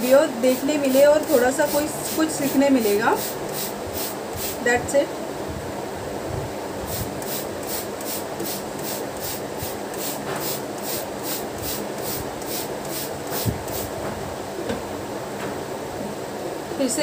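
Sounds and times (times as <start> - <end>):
spray bottle hissing sprays: 0.5 - 4.6, 6.9 - 13.9.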